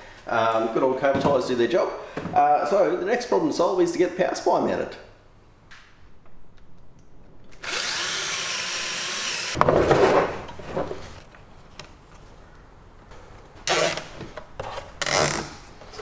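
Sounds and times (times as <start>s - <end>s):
cordless drill motor whine: 7.6s - 9.6s
drill bit boring into wood: 7.6s - 9.6s
cable tie zipping: 13.6s - 14.1s, 15.0s - 15.6s.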